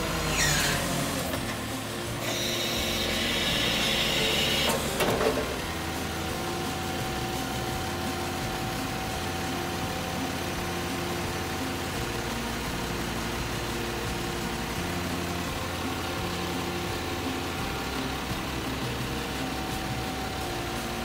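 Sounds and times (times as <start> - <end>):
hydraulics whining: 0.0 - 21.0
truck diesel engine idling: 0.0 - 21.0
clunks: 0.4 - 5.7
hiss: 2.3 - 5.1.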